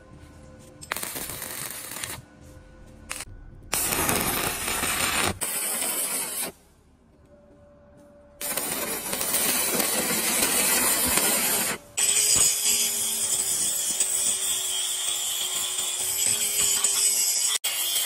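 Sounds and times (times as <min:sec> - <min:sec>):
welding arc crackling: 0:00.8 - 0:02.2, 0:03.1 - 0:06.6, 0:08.4 - 0:18.0
angle grinder grinding steel: 0:08.4 - 0:18.0.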